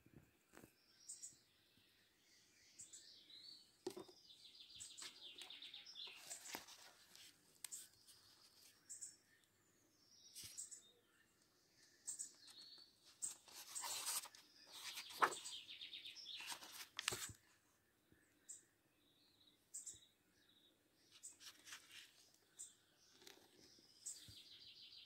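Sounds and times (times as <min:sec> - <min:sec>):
paper pages turning: 0:06.0 - 0:08.8, 0:13.1 - 0:15.6, 0:16.3 - 0:17.4, 0:21.1 - 0:22.3.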